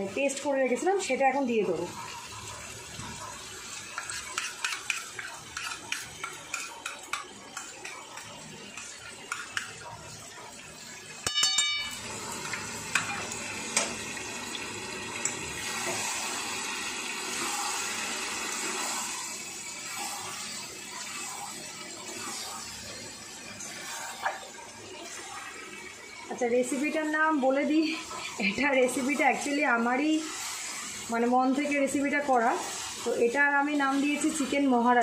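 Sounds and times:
food sizzling in oil: 0.0 - 35.0
metal spatula scraping pan: 3.9 - 9.7
spoon scraping plate: 4.0 - 9.7.

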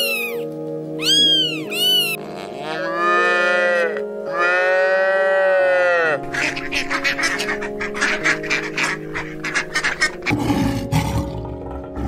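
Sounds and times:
cat meowing: 0.0 - 4.0
background music: 0.0 - 12.0
cow mooing: 2.1 - 6.3.

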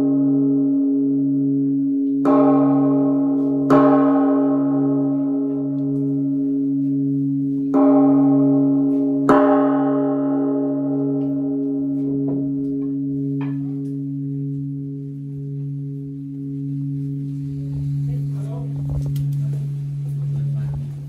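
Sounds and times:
large bell struck with mallet: 0.0 - 21.0.

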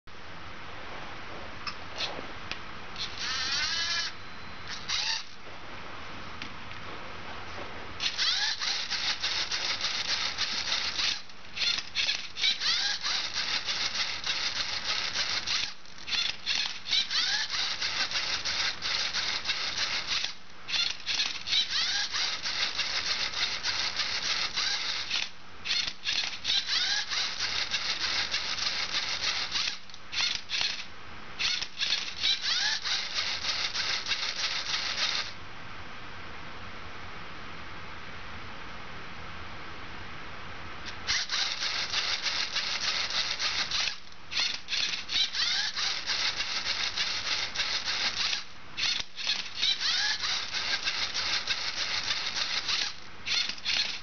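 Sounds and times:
servo motors whirring: 3.0 - 5.4, 8.0 - 35.4, 41.1 - 54.0.

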